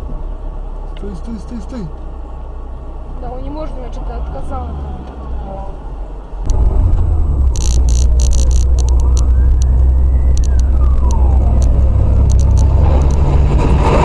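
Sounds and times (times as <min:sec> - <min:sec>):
low rumble of driving: 0:00.0 - 0:14.0
faint siren wailing: 0:04.5 - 0:13.5
sharp clicks: 0:06.5 - 0:13.5.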